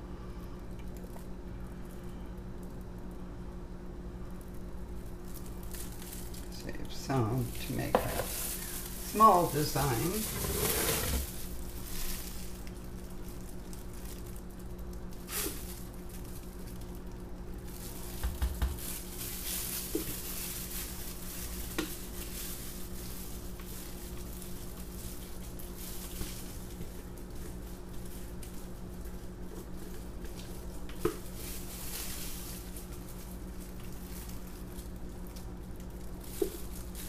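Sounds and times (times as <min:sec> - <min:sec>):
plastic gloves rustling: 0:04.2 - 0:37.0
spatula scraping plastic pitcher: 0:10.1 - 0:11.3.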